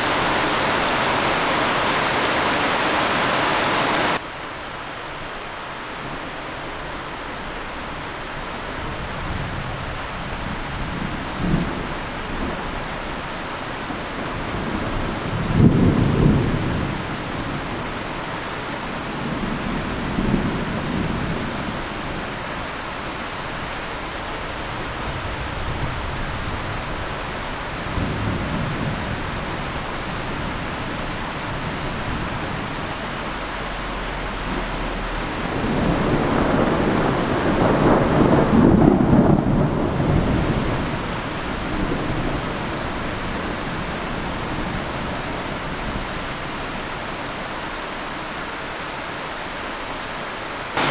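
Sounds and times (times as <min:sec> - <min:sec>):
heavy rain hiss: 0:00.0 - 0:50.9
thunder rumbling: 0:08.8 - 0:18.1, 0:23.8 - 0:46.2.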